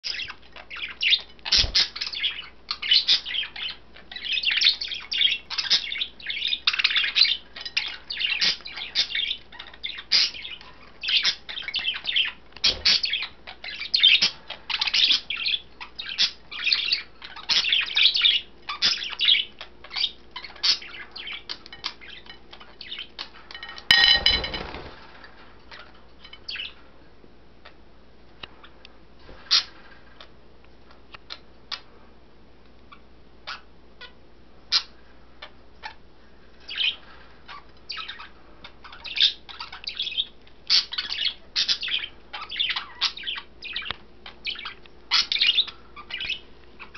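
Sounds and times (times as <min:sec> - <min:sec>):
budgies chattering and chirping: 0:00.0 - 0:24.9, 0:25.7 - 0:26.8, 0:28.6 - 0:30.4, 0:32.9 - 0:36.0, 0:36.6 - 0:46.9.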